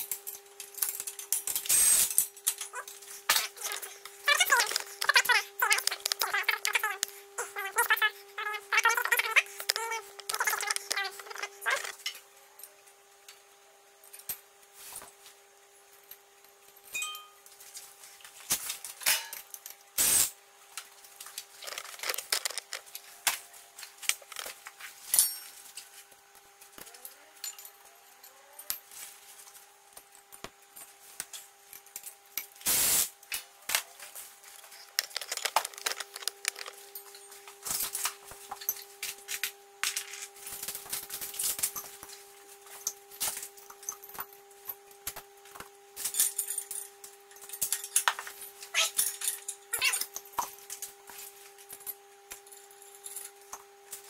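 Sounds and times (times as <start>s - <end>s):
metal tools clinking and rattling: 0.0s - 12.2s, 34.5s - 42.0s, 46.0s - 50.2s
faint steady hum: 0.0s - 54.0s.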